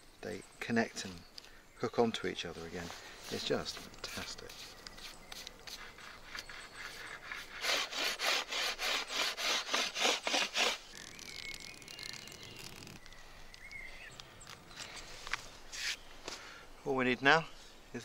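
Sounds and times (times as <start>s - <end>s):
hand tool scraping wood: 2.7s - 13.0s.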